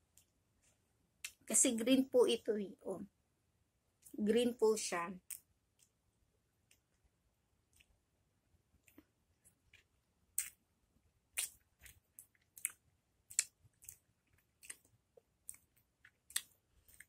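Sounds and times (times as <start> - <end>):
wet chewing and slurping: 11.4 - 17.0.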